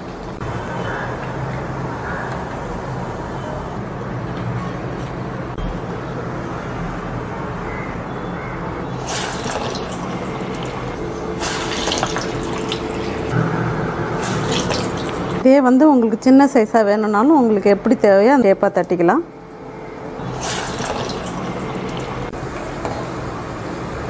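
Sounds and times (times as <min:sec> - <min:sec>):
hot oil sizzling and bubbling: 0:09.0 - 0:13.3, 0:14.2 - 0:15.4, 0:20.2 - 0:23.2.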